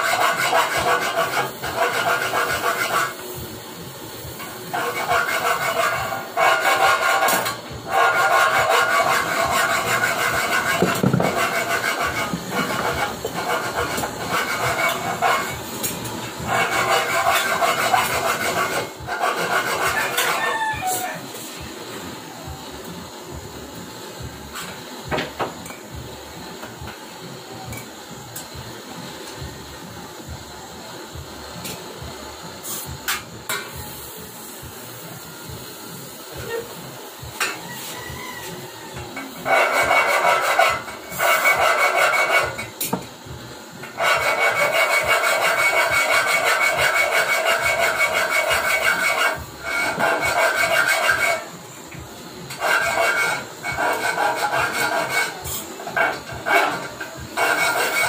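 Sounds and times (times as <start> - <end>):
gas torch hissing: 0.0 - 58.0.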